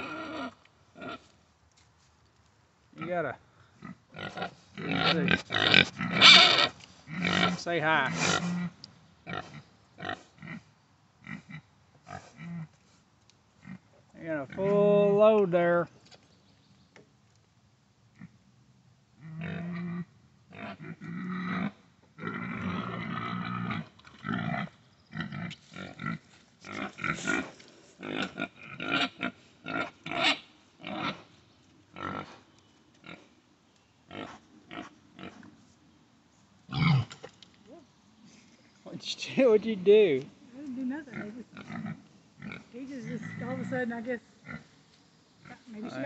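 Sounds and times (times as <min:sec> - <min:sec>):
pigs grunting: 0:00.0 - 0:01.3, 0:03.0 - 0:12.7, 0:19.2 - 0:31.3, 0:31.9 - 0:32.4, 0:36.7 - 0:37.2, 0:41.0 - 0:43.8, 0:44.4 - 0:44.7.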